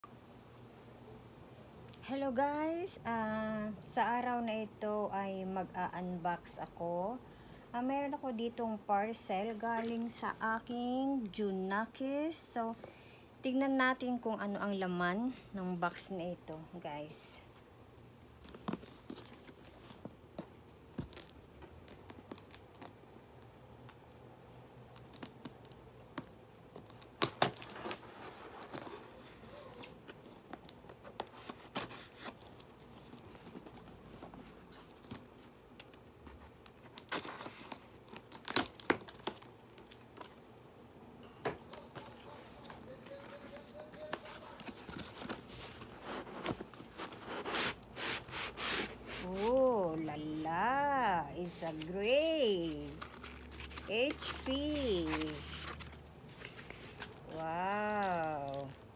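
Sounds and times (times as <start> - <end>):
tape and cardboard tearing: 25.0 - 29.0.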